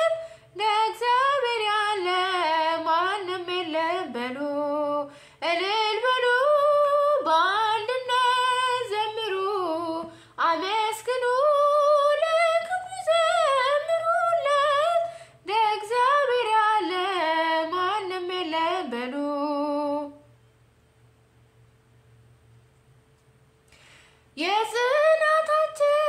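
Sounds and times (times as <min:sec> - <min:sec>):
woman singing unaccompanied: 0:00.0 - 0:20.3, 0:24.4 - 0:26.0.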